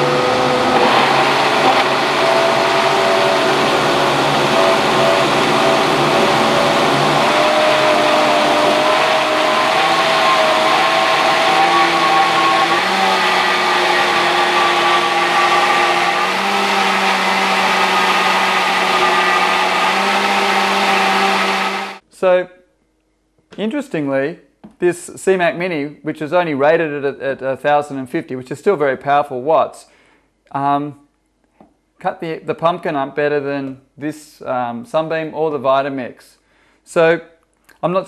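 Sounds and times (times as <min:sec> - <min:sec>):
blender motor churning: 0:00.0 - 0:22.0.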